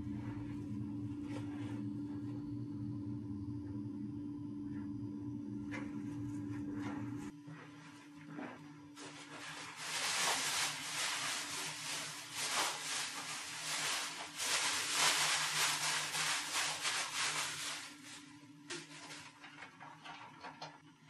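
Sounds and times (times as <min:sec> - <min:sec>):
hands scrubbing: 0:09.0 - 0:18.2.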